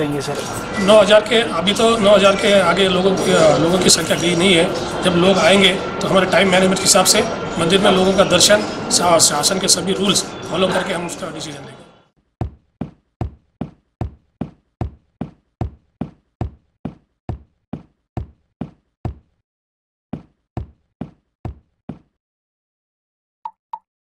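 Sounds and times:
cartoon footsteps thudding: 0:12.4 - 0:19.4, 0:20.1 - 0:22.2.

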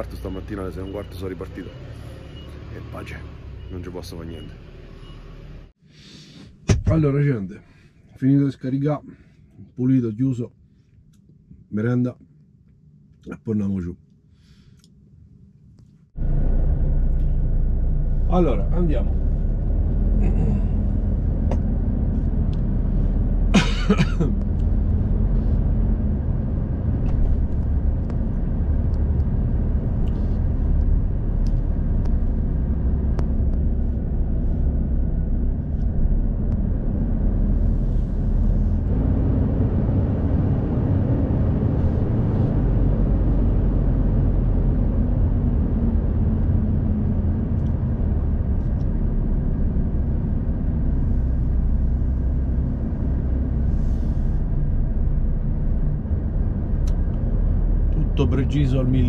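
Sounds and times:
diesel truck engine running: 0:16.2 - 0:59.0.

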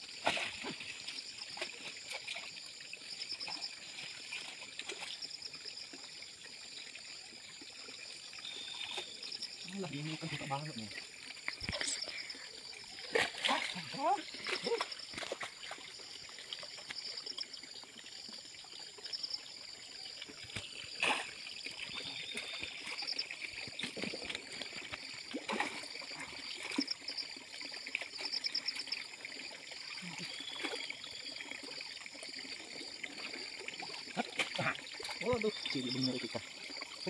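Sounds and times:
water sloshing and trickling: 0:00.0 - 0:37.0
sharp splashes: 0:11.4 - 0:16.0, 0:20.5 - 0:27.2.

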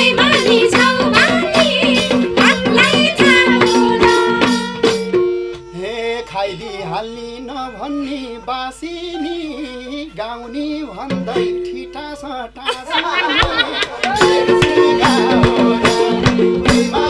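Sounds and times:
hand drum beats: 0:00.0 - 0:06.4, 0:11.0 - 0:11.8, 0:12.9 - 0:17.0
harmonium: 0:00.0 - 0:17.0
violin: 0:00.0 - 0:17.0
person singing: 0:05.7 - 0:17.0.

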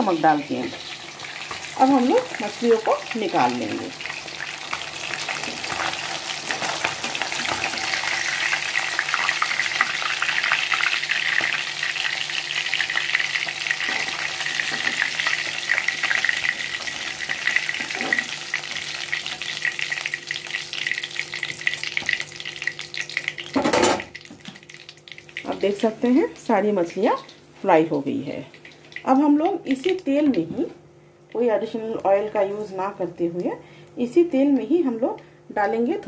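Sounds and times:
fish sizzling in hot oil: 0:00.0 - 0:27.4.

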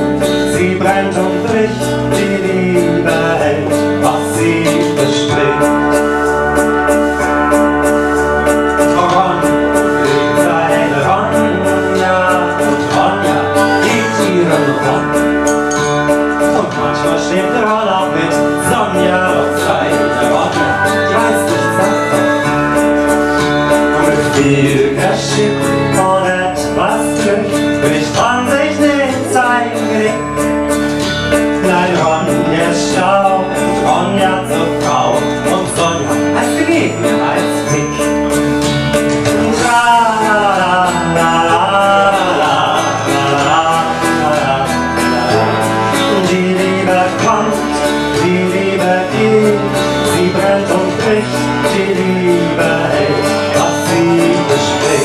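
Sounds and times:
instrumental accompaniment: 0:00.0 - 0:55.0
person singing into microphone: 0:00.0 - 0:55.0.

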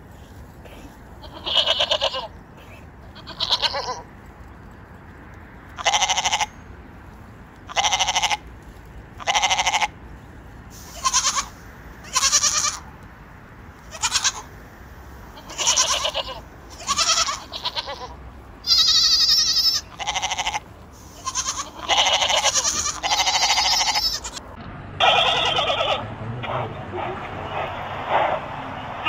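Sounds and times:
goats bleating: 0:00.7 - 0:04.1, 0:05.8 - 0:06.6, 0:07.7 - 0:08.4, 0:09.2 - 0:10.0, 0:10.9 - 0:12.8, 0:13.8 - 0:14.5, 0:15.3 - 0:24.4, 0:25.0 - 0:26.2.

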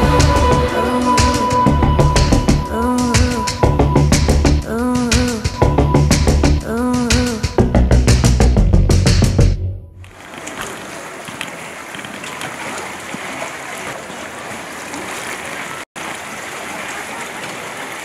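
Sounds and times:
music track: 0:00.0 - 0:10.0
water lapping and sloshing: 0:10.0 - 0:18.0.

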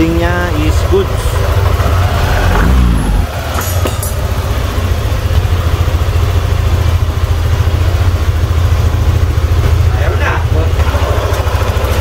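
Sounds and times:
scooter engine idling: 0:00.0 - 0:12.0.

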